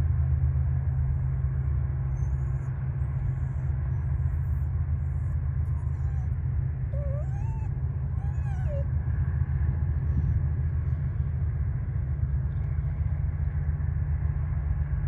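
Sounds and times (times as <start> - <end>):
steady low rumble: 0.0 - 15.0
whining animal cries: 2.1 - 8.9.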